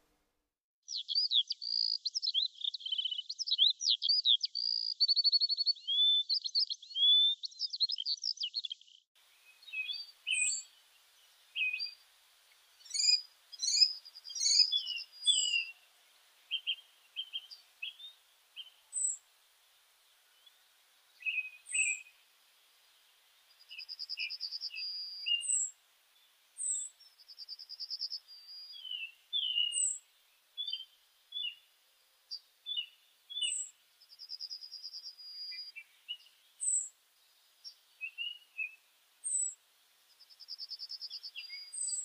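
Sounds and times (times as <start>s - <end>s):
bird whistles and trills: 0.9s - 8.8s, 9.5s - 10.7s, 12.8s - 15.8s, 16.5s - 19.2s, 21.2s - 22.1s, 23.7s - 25.7s, 26.6s - 30.0s, 32.7s - 36.9s, 38.0s - 39.6s, 40.5s - 42.0s
bird chirps and calls: 0.9s - 19.2s, 20.3s - 22.2s, 23.4s - 30.0s, 30.6s - 31.6s, 32.3s - 36.9s, 37.6s - 39.6s, 40.2s - 42.0s
faint hiss: 9.2s - 42.0s.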